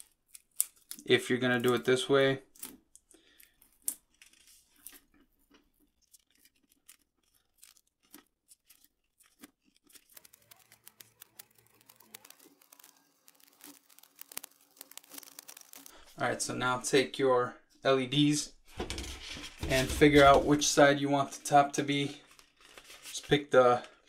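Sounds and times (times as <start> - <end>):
crinkles of peeling tape: 0.0 - 5.2, 5.9 - 16.2, 22.2 - 24.0.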